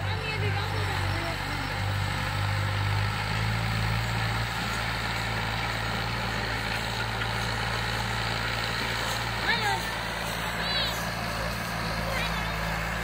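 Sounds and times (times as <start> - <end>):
tractor diesel engine under load: 0.0 - 13.0.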